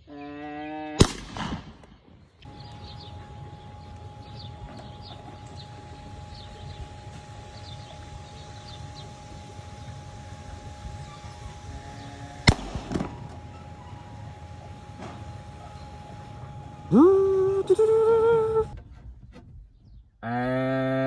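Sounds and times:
rifle shot with echo: 1.0 - 1.9, 12.5 - 13.2
steady hum: 1.0 - 21.0
small birds chirping: 1.9 - 12.6.

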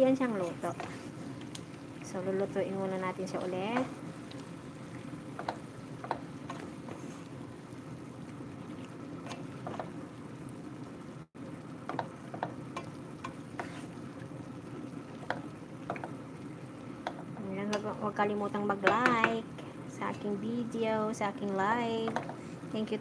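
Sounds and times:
low cooking noise: 0.0 - 23.0
spatula scraping metal pan: 13.5 - 13.9.

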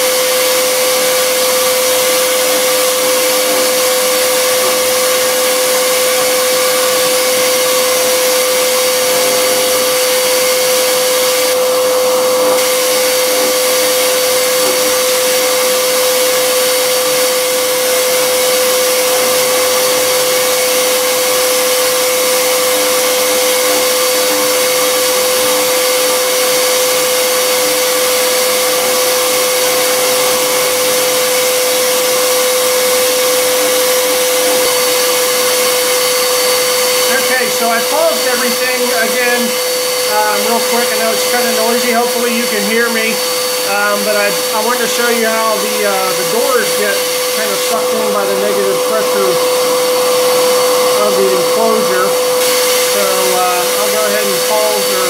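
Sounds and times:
router spindle milling wood: 0.0 - 55.0
shop vacuum running: 0.0 - 55.0.

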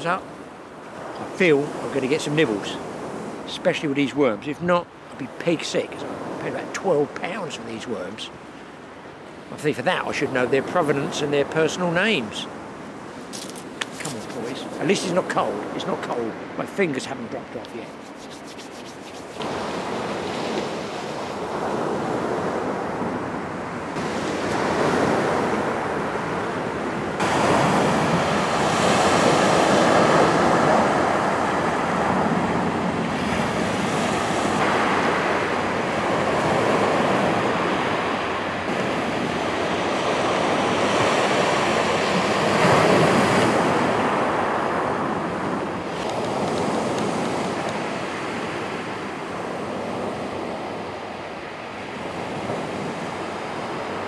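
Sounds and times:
waves breaking on shingle beach: 12.2 - 23.1, 27.1 - 50.5
wind on microphone: 12.6 - 15.8, 17.5 - 54.0.

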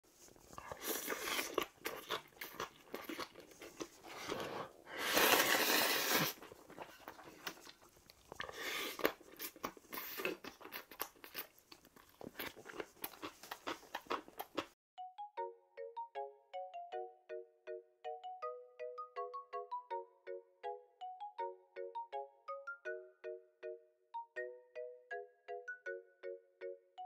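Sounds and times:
man chewing and crunching food: 0.1 - 14.8.

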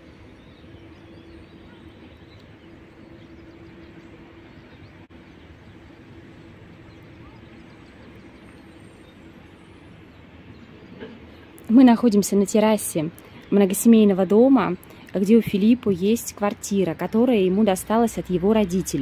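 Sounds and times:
faint bird chirps: 0.0 - 11.6
constant low hum: 0.0 - 19.0.

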